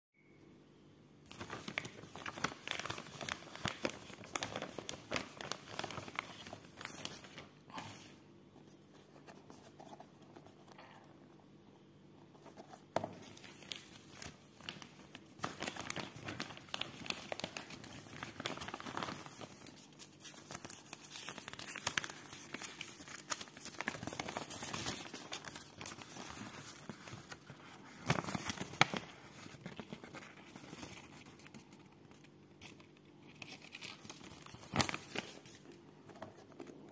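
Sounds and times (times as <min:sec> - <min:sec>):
paper rustling: 0:01.3 - 0:10.8, 0:12.3 - 0:36.9
plastic bag crinkling: 0:13.2 - 0:32.8.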